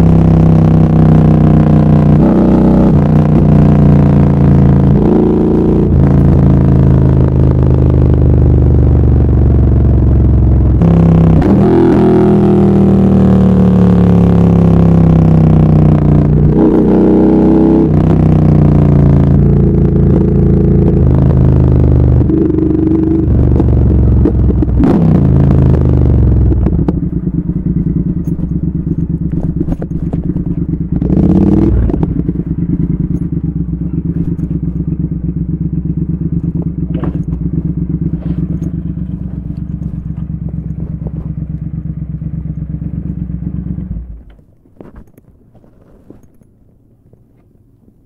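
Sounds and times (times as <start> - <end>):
motorcycle engine idling: 25.5 - 44.5.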